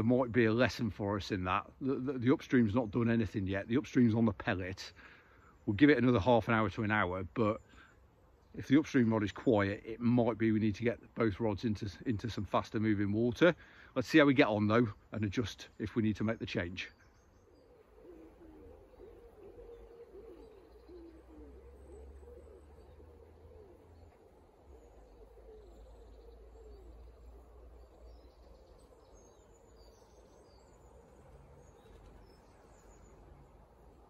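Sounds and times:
faint high bird chirps: 0:14.4 - 0:34.0
low bird call: 0:14.5 - 0:34.0.

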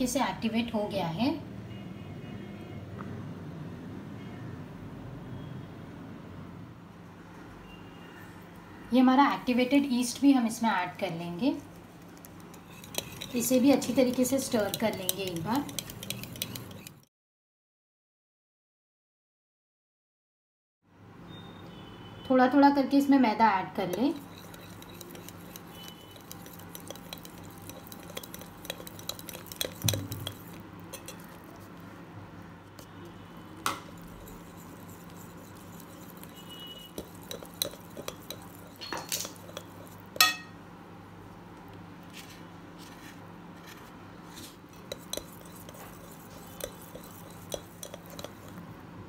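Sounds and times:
wire whisk stirring dough: 0:11.2 - 0:17.1, 0:23.8 - 0:32.0, 0:32.7 - 0:40.4, 0:44.7 - 0:48.8
whisk tapping glass bowl: 0:12.2 - 0:17.1, 0:23.8 - 0:31.8, 0:33.6 - 0:40.5, 0:44.8 - 0:48.6.

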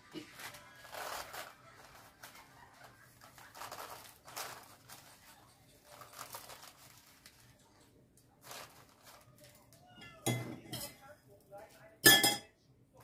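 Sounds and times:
plastic scraper rustling and scraping: 0:00.2 - 0:07.4, 0:08.4 - 0:09.5.

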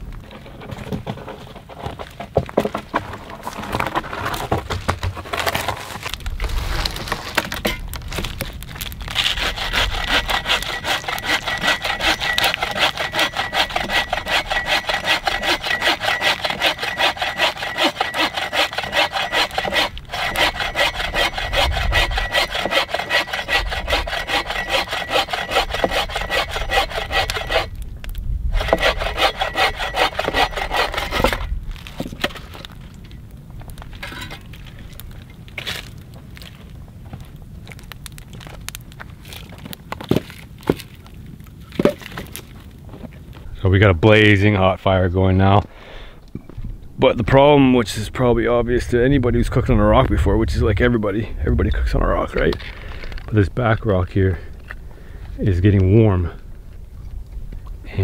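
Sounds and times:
bow saw cutting through log: 0:09.1 - 0:27.8, 0:28.5 - 0:31.6.

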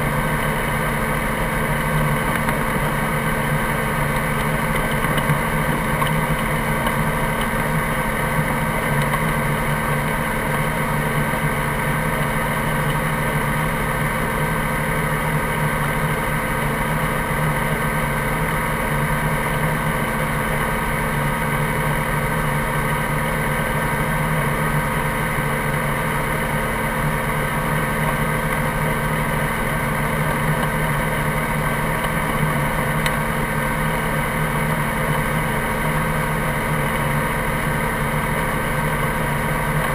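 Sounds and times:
helicopter engine and rotor idling: 0:00.0 - 0:39.9.

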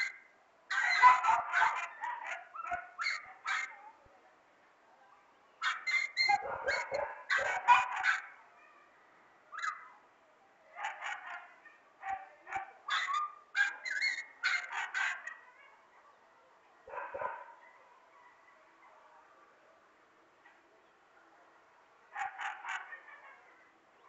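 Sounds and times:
dogs barking: 0:00.7 - 0:03.8, 0:05.6 - 0:08.4, 0:10.8 - 0:15.5, 0:16.9 - 0:17.8, 0:22.1 - 0:23.4.

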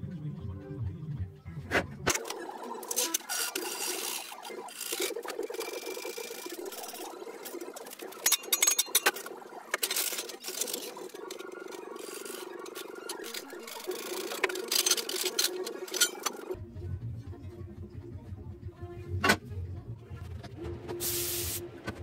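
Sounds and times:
machine hum: 0:02.1 - 0:16.6
steel bar clanking and scraping: 0:08.0 - 0:11.4, 0:14.1 - 0:16.6.

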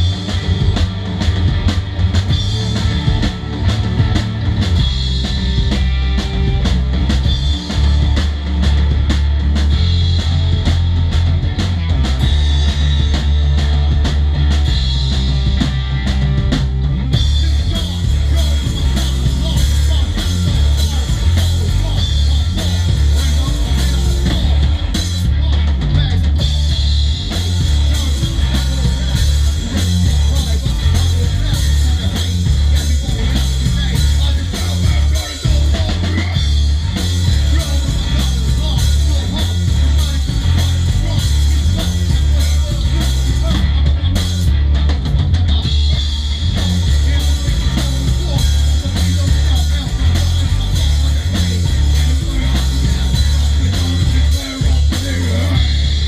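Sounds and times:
bass guitar: 0:00.0 - 0:56.0
drum kit: 0:00.0 - 0:56.0
electric guitar: 0:00.0 - 0:56.0
person singing: 0:17.1 - 0:44.5, 0:45.3 - 0:56.0.

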